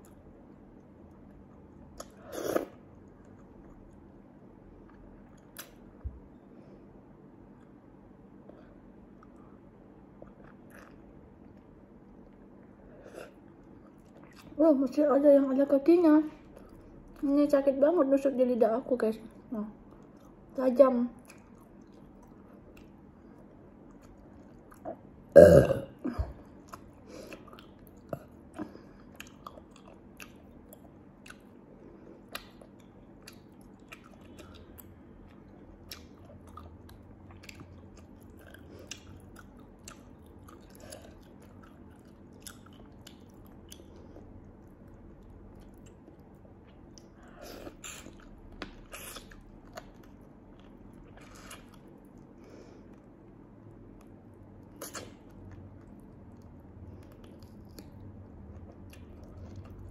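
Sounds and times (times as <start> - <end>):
person burping: 25.3 - 26.4
wet eating smacks and sucks: 54.6 - 59.8.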